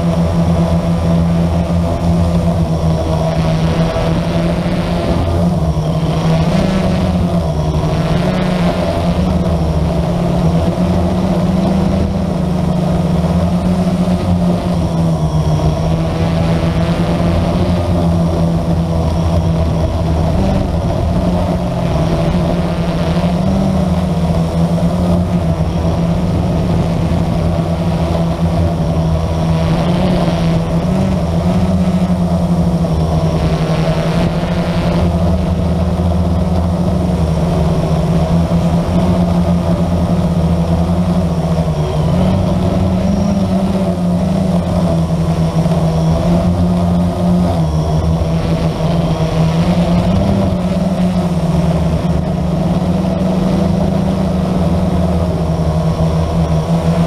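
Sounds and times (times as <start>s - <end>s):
quadcopter propellers buzzing: 0.0s - 57.0s.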